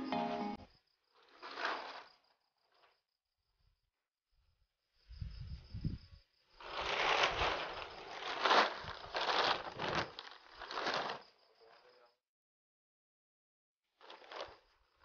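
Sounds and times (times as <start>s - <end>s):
plastic sack rustling and crinkling: 1.2s - 2.9s, 6.6s - 11.4s, 14.0s - 15.0s.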